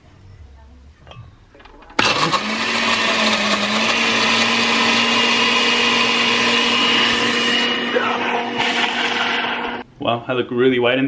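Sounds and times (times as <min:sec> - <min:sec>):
blender running at high speed: 0:02.0 - 0:09.8.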